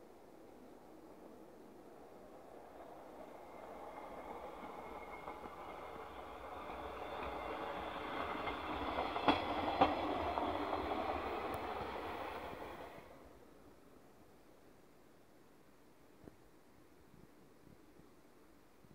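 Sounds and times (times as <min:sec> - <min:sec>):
diesel railbus engine: 0:01.3 - 0:13.6
train wheels rumbling on track: 0:01.4 - 0:13.2.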